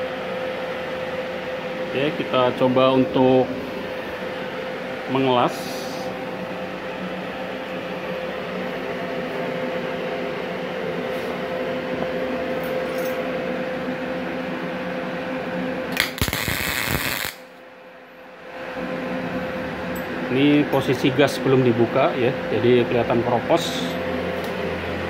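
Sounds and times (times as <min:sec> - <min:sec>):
welding machine humming: 0:15.5 - 0:17.6
welding arc noise: 0:15.9 - 0:17.6.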